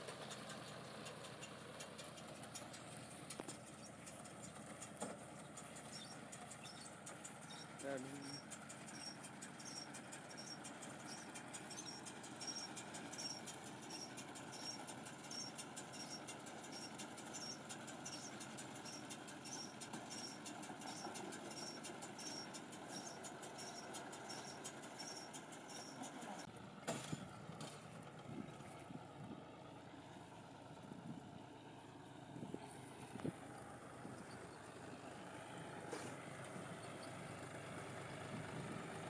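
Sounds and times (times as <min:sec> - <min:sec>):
tractor engine running: 0:00.0 - 0:39.0
high squeak: 0:18.9 - 0:26.3.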